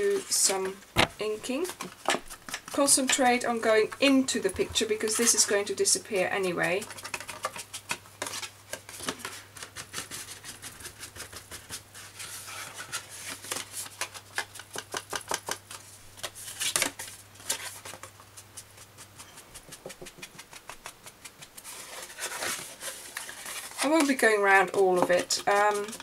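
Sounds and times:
sponge dabbing on paper: 18.2s - 22.2s, 23.8s - 26.0s.

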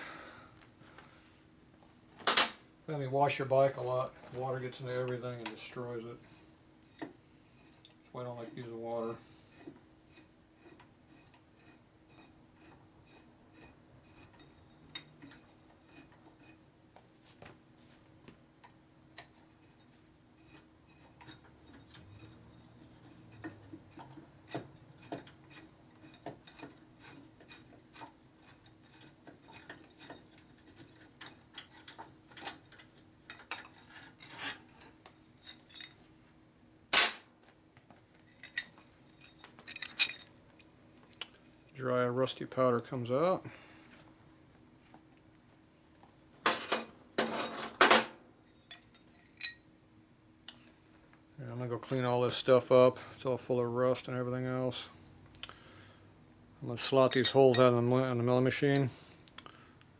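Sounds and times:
hand tools clinking on metal: 38.2s - 40.3s, 48.5s - 49.7s, 56.9s - 57.8s.

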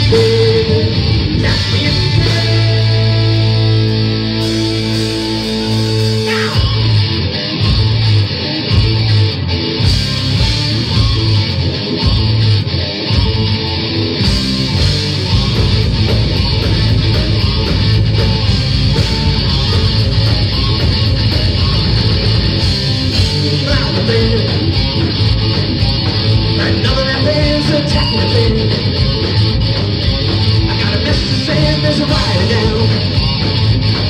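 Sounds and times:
live rock band playing: 0.0s - 34.0s.

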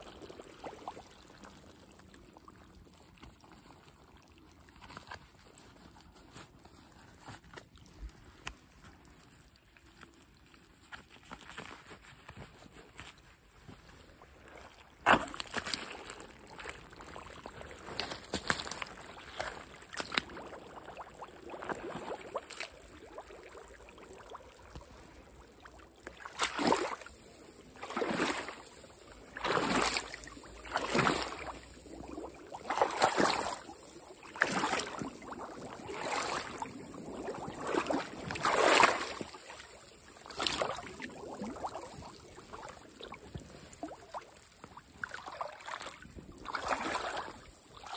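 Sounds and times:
footsteps in wet mud: 4.6s - 20.6s, 29.4s - 32.0s, 32.6s - 41.0s
splashing strides through stream: 14.4s - 23.4s, 26.0s - 47.9s.

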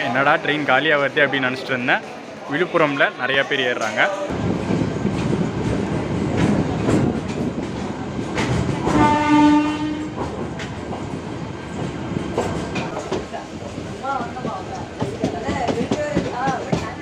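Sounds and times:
train rumble: 4.1s - 17.0s
knocks and clatter: 4.6s - 9.2s, 10.0s - 17.0s
train horn: 8.8s - 10.2s.

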